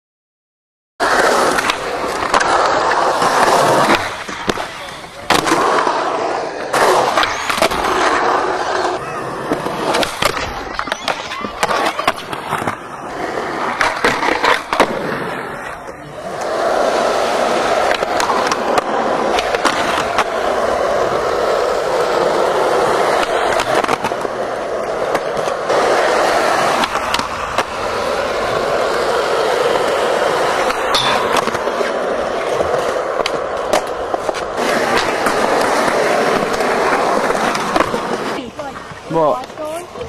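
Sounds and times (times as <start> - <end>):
skateboard clacking on ground: 1.0 - 40.0
skateboard wheels rolling on concrete: 1.0 - 40.0.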